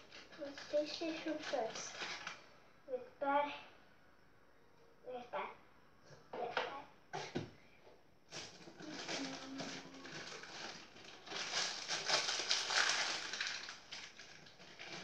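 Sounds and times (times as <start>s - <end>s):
rummaging in kitchen cupboard: 8.3s - 13.6s.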